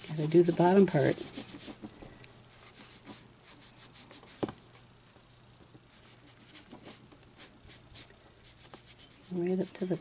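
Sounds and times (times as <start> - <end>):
sponge rubbing on cardstock: 0.2 - 1.9, 2.6 - 4.4, 5.9 - 10.0.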